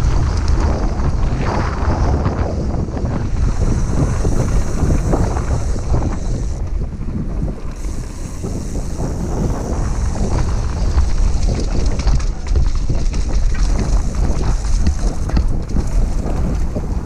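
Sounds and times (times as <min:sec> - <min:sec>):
tyres rumbling on dirt: 0:00.0 - 0:17.0
wind buffeting microphone: 0:00.0 - 0:17.0
bike knocks and rattles: 0:07.4 - 0:17.0.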